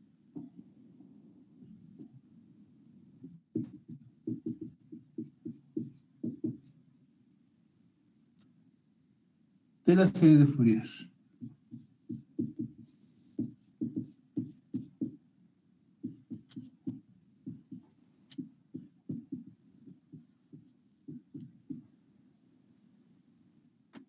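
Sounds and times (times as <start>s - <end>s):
marker writing on whiteboard: 3.2s - 6.8s, 11.4s - 15.3s, 16.0s - 21.9s.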